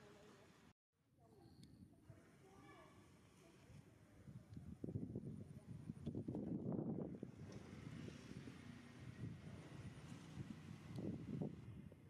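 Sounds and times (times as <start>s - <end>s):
wind rumble on microphone: 3.7s - 12.0s.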